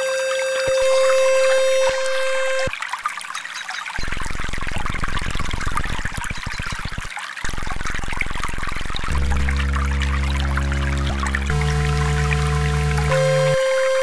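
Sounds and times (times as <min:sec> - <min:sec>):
steady pitched tone: 0:00.0 - 0:02.7, 0:08.8 - 0:14.0
trickling water: 0:00.1 - 0:14.0
low buzzing tone pulsing: 0:00.7 - 0:02.7, 0:07.5 - 0:14.0.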